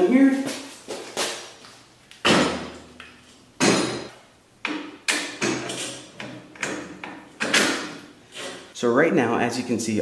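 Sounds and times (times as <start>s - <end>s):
metal knocks and clunks: 2.2s - 3.0s, 3.6s - 8.0s.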